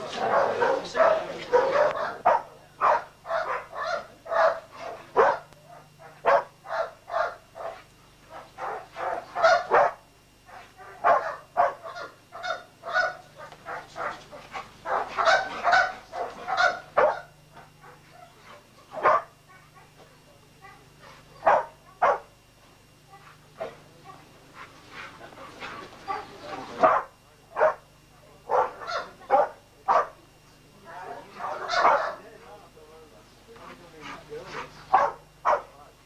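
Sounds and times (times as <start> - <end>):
dog barking: 0.1 - 20.0, 21.0 - 22.3, 26.1 - 27.9, 28.5 - 30.2, 31.4 - 32.2, 34.9 - 35.7.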